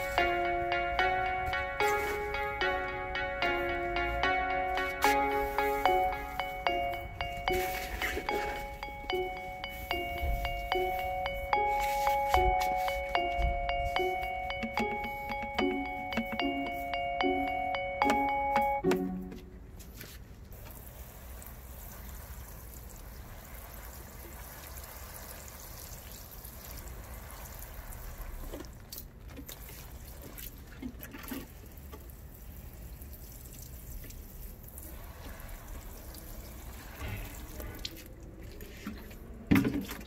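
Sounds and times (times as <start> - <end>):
water trickling and dripping: 20.6 - 40.0.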